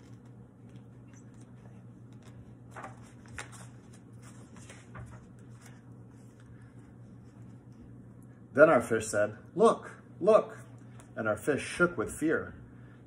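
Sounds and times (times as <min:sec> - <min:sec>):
paper pages rustling: 0:00.0 - 0:08.0
low steady hum: 0:00.0 - 0:13.0.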